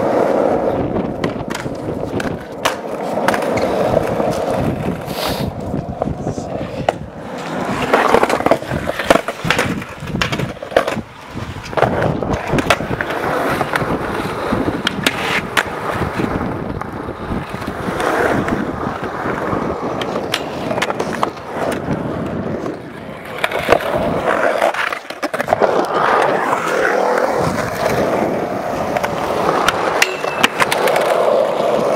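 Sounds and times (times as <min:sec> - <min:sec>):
skateboard clacking on ground: 0:00.0 - 0:31.9
skateboard wheels rolling on concrete: 0:00.0 - 0:31.9.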